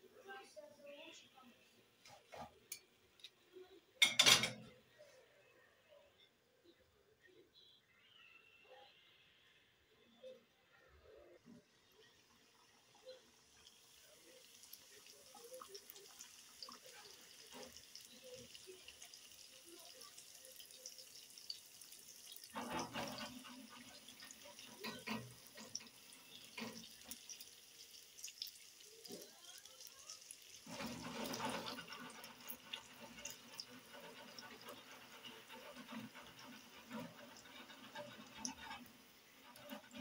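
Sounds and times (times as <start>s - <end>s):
doughnuts sizzling in hot oil: 11.1s - 40.0s.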